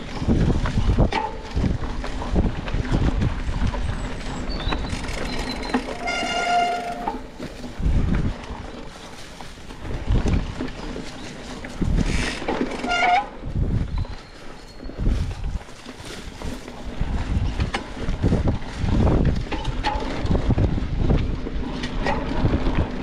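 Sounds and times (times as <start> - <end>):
mountain bike rumbling on trail: 0.0 - 23.0
wind buffeting microphone: 0.0 - 23.0
horn-like tone: 5.9 - 7.3.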